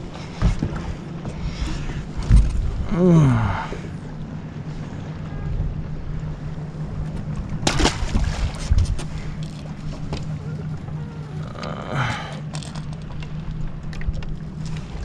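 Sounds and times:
steady low hum: 0.0 - 15.0
water around a boat: 0.0 - 15.0
wind: 0.0 - 15.0
person groaning: 2.8 - 3.8, 11.4 - 12.4
fish splashing into water: 7.6 - 8.6.

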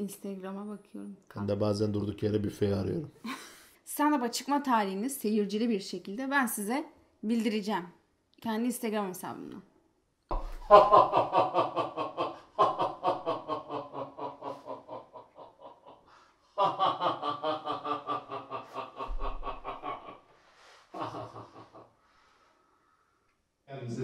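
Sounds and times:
person laughing: 10.6 - 16.0, 16.6 - 20.2, 21.0 - 21.8.

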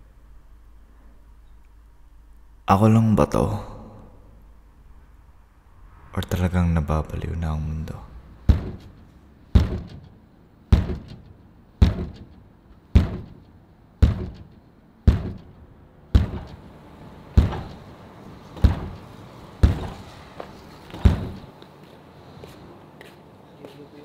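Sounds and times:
faint steady hum: 0.0 - 24.0
heavy echoing thuds: 8.2 - 16.7, 17.3 - 17.9, 18.6 - 20.1, 20.9 - 21.5.

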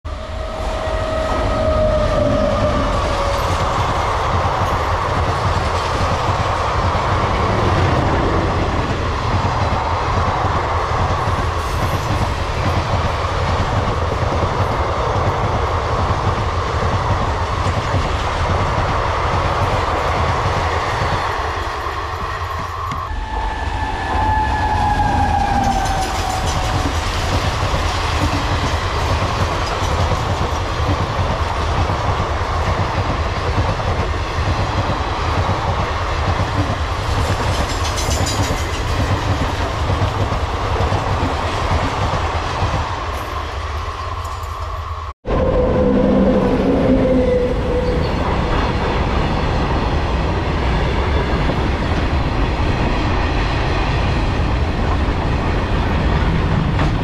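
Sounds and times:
train horn: 0.1 - 3.5, 22.6 - 27.0, 45.2 - 48.5
train rumbling past: 0.1 - 57.0
wheels clattering over rail joints: 25.3 - 33.1, 36.4 - 43.5.

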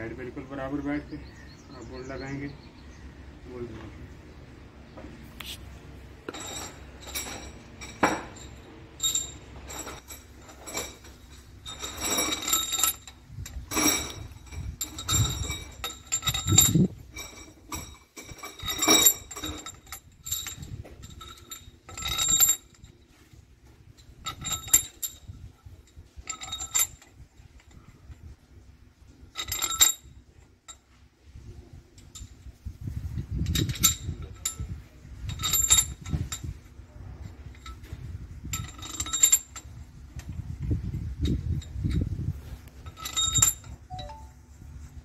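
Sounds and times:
metal bolts clinking: 6.2 - 23.2, 23.9 - 28.2, 29.3 - 31.0, 33.4 - 36.6, 37.4 - 40.4, 41.2 - 44.3.

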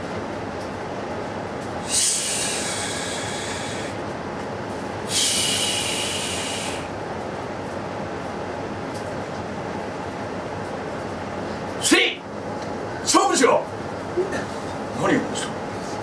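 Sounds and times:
steady background noise: 0.0 - 16.0.

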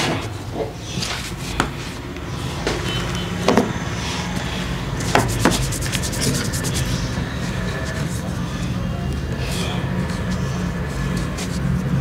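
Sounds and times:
skin rubbing on skin: 4.2 - 12.0.

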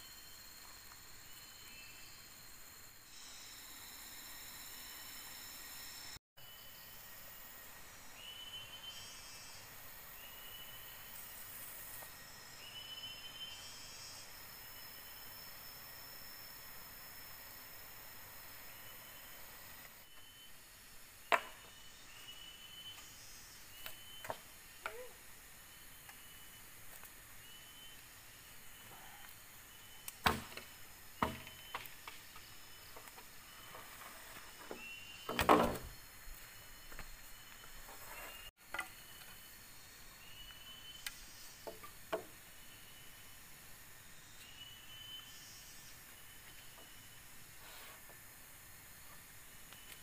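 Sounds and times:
faint steady high tone: 0.0 - 20.6.

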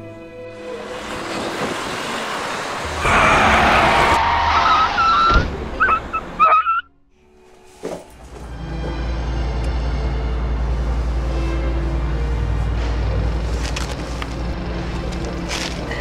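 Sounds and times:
street traffic noise: 0.0 - 16.0
vehicle passing: 0.8 - 5.7.

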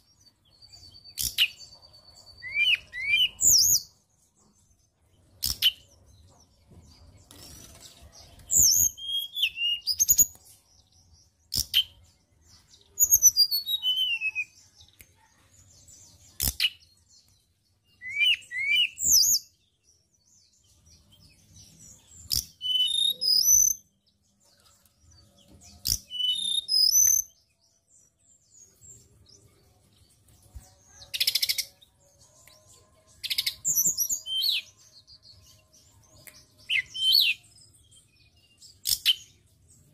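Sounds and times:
bird whistling song: 0.6 - 3.9, 8.4 - 10.4, 13.0 - 14.6, 17.9 - 19.6, 21.8 - 23.9, 25.8 - 27.4, 33.2 - 34.8, 36.2 - 37.5, 38.4 - 39.3.

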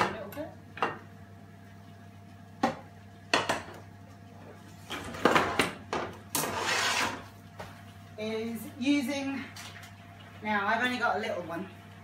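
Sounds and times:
pan scraping across stovetop: 6.3 - 7.3.

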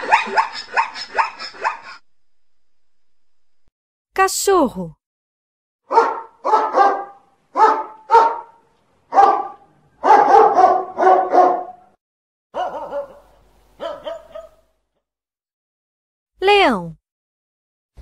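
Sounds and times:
dog barking: 0.0 - 2.0, 5.9 - 14.8.

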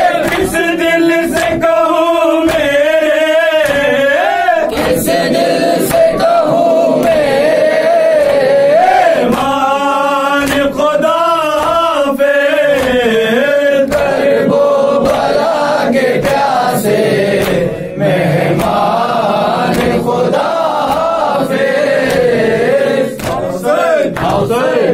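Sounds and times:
men chanting a lament: 0.0 - 24.9
chest-beating slaps: 0.2 - 1.8, 2.4 - 2.8, 3.6 - 4.0, 4.6 - 5.2, 10.3 - 13.2, 13.9 - 14.3, 16.1 - 16.7, 17.3 - 17.8, 18.5 - 19.0, 19.6 - 22.5, 23.2 - 24.6.

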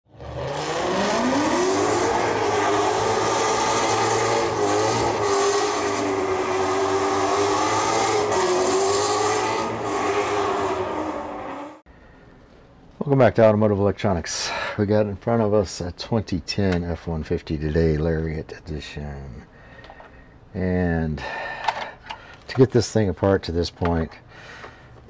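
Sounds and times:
car engine revving: 0.1 - 11.8
spinning tyres hissing: 0.2 - 11.8.

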